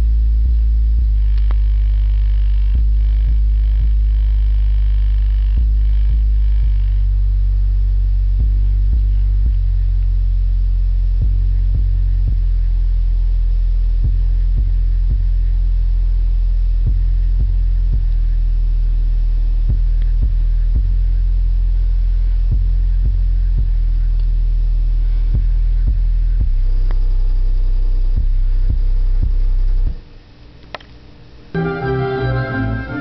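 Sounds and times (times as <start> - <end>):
deep sub-bass test tone: 0.0 - 30.2.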